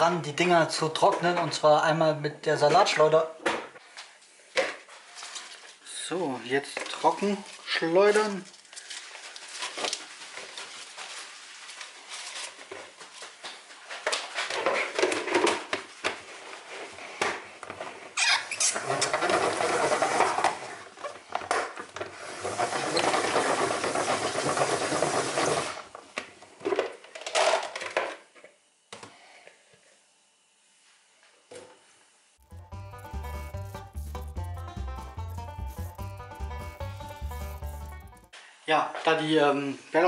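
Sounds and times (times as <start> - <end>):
salad spinner spinning: 32.4 - 38.3.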